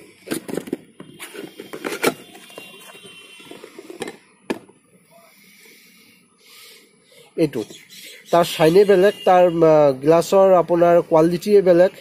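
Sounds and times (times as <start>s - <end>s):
cardboard rustling and scraping: 0.0s - 4.7s.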